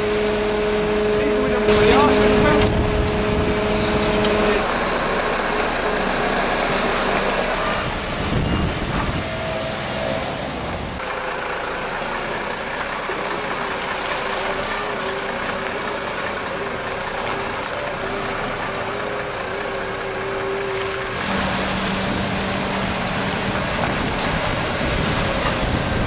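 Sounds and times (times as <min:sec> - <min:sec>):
diesel truck engine running: 0:00.0 - 0:26.0.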